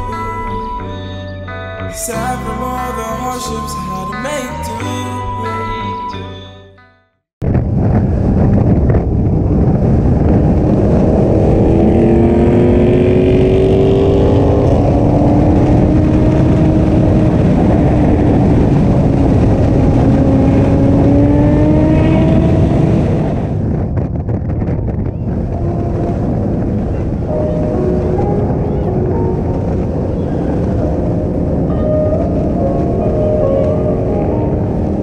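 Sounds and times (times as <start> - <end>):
heavy low rumbling noise: 7.4 - 24.7, 25.3 - 35.0
vehicle engine accelerating: 9.3 - 23.7.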